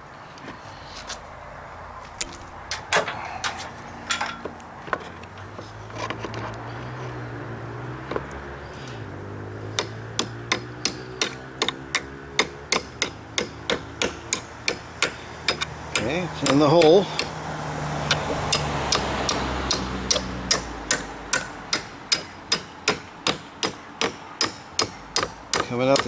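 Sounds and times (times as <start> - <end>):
hammer tapping a pin: 18.1 - 26.0.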